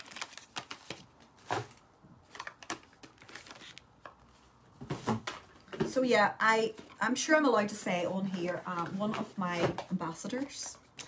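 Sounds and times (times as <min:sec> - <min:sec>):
cardboard packaging handled: 0:00.0 - 0:05.6.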